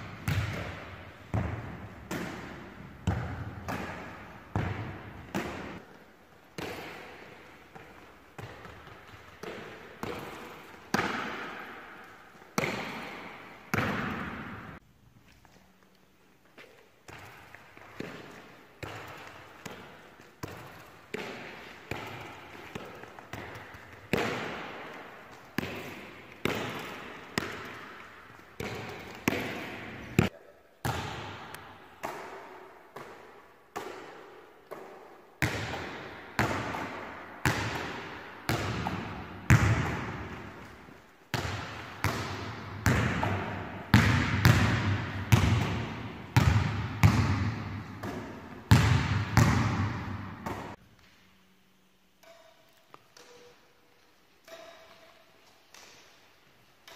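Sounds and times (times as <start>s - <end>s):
ball bouncing on wooden floor: 0.1s - 5.9s, 41.3s - 50.8s.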